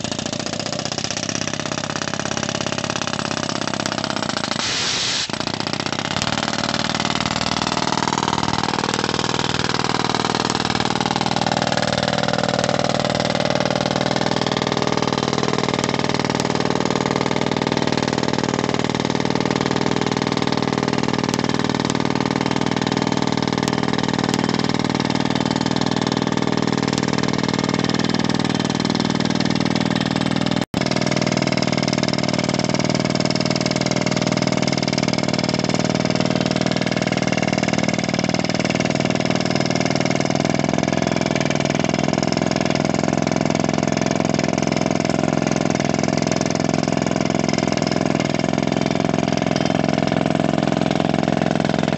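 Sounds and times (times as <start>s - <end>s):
pneumatic drill hammering: 0.0s - 51.9s
compressed air blowing: 3.8s - 12.5s.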